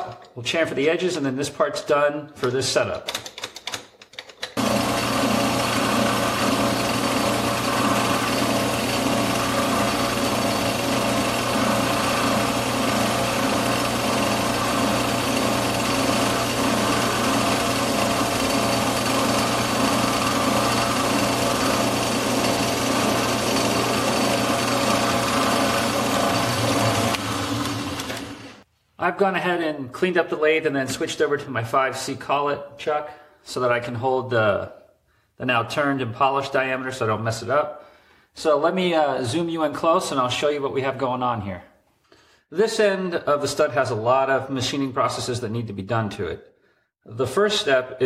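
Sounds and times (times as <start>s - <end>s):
metal lathe whirring: 4.6s - 28.6s.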